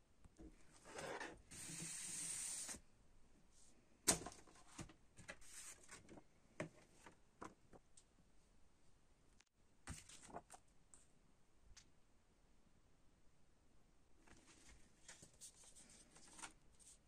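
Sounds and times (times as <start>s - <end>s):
paper sliding: 0.8s - 2.8s
paper rustling: 9.9s - 10.6s, 14.3s - 17.0s.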